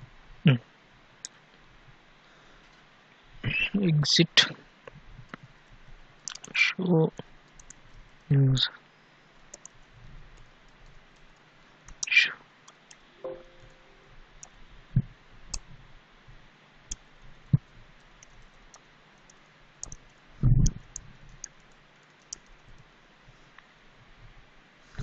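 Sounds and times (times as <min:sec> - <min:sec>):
keyboard typing clicks: 0:07.5 - 0:07.8, 0:09.5 - 0:09.8, 0:12.7 - 0:14.6, 0:16.9 - 0:22.8.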